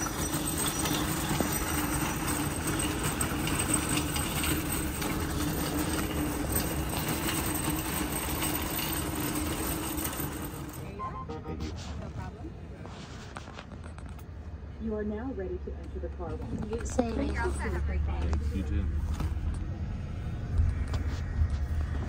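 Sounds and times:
shopping cart rattling on asphalt: 0:00.0 - 0:10.9.

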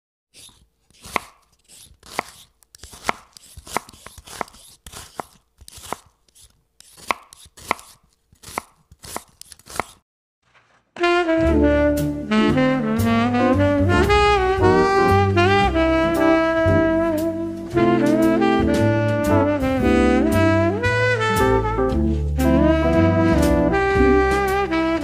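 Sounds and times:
knife chopping on cutting board: 0:00.4 - 0:10.0
jazzy saxophone music: 0:11.0 - 0:25.0.

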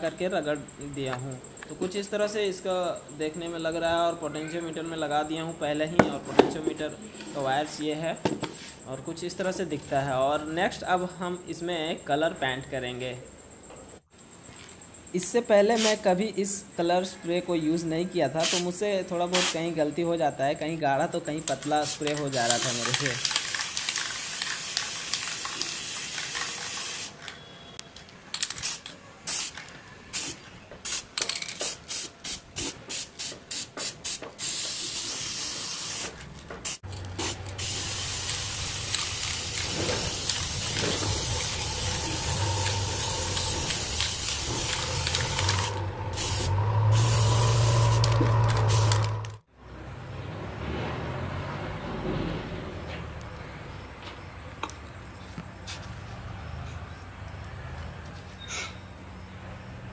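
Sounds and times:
spray can hissing: 0:15.7 - 0:16.0, 0:18.4 - 0:18.7, 0:19.3 - 0:19.7, 0:21.8 - 0:27.2, 0:28.6 - 0:49.2.

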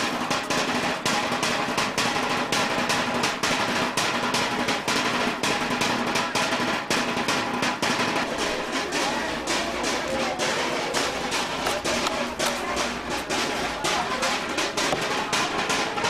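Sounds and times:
fast snare drumbeat: 0:00.0 - 0:16.0.

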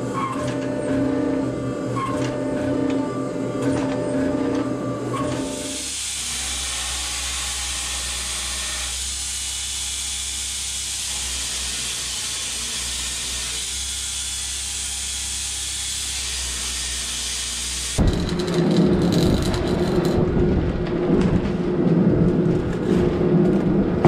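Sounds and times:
abrasive belt grinding steel: 0:16.1 - 0:20.4.

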